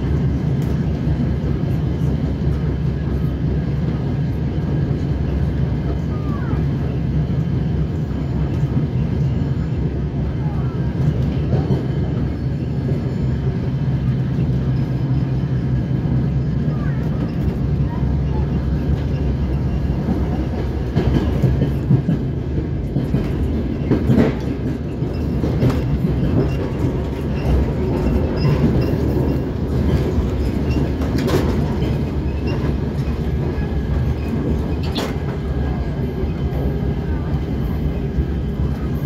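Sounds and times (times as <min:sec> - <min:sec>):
train engine and wheels rumbling: 0:00.0 - 0:39.0
wheels clicking over track: 0:18.3 - 0:36.9.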